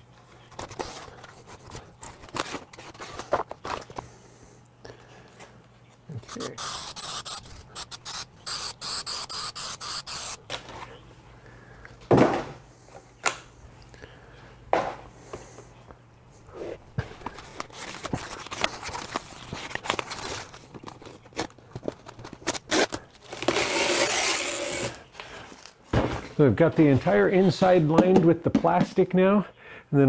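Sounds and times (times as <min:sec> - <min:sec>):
aerosol spray hissing: 0:06.2 - 0:10.4
plastic sheet rustling and crinkling: 0:17.2 - 0:24.9.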